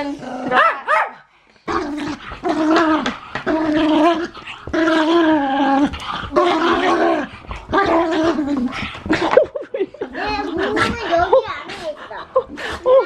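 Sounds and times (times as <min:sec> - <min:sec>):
small dog barking loudly: 0:00.6 - 0:01.2.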